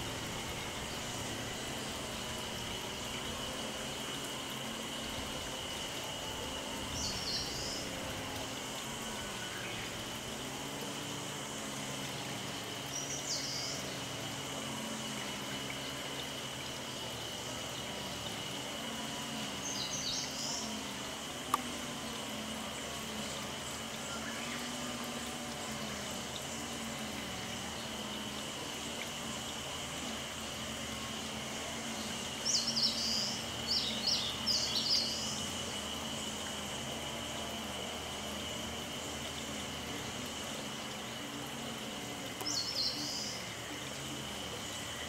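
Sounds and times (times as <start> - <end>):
small birds chirping: 42.4 - 43.5.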